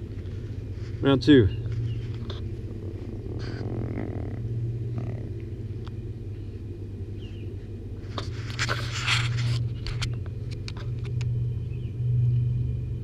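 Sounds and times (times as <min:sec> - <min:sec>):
cats purring: 0:00.0 - 0:08.9.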